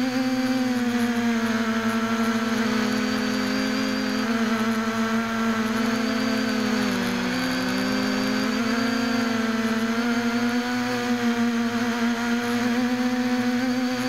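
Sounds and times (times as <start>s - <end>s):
quadcopter motors humming: 0.0s - 14.0s.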